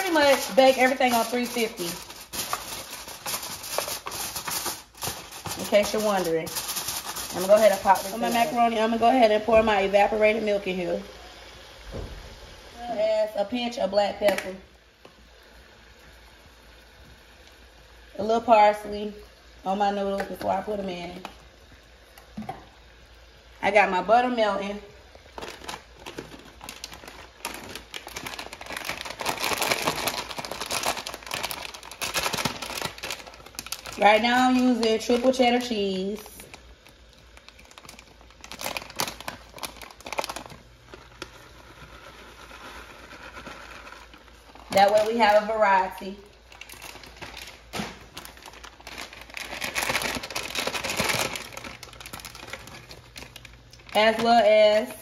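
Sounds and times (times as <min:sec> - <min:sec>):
plastic bag crinkling: 0:00.0 - 0:10.2, 0:24.4 - 0:55.0.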